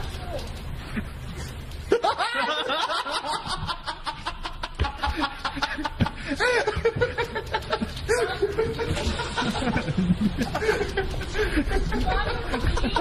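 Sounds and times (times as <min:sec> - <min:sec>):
person laughing in breathy snickers: 0:00.8 - 0:13.0.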